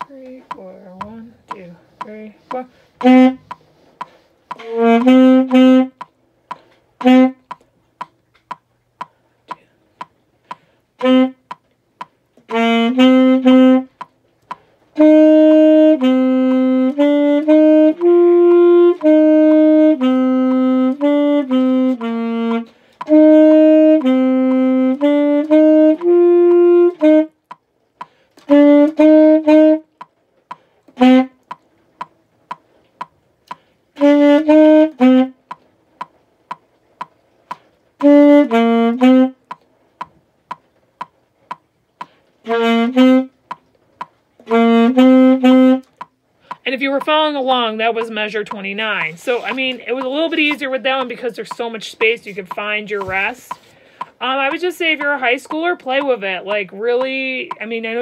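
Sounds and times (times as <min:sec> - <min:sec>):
metronome clicking: 0:00.0 - 0:58.0
solo saxophone: 0:02.3 - 0:06.2, 0:07.0 - 0:07.6, 0:10.5 - 0:11.6, 0:12.4 - 0:14.1, 0:14.9 - 0:31.6, 0:33.5 - 0:35.6, 0:37.5 - 0:39.6, 0:42.0 - 0:43.6, 0:44.4 - 0:47.2, 0:47.9 - 0:58.0.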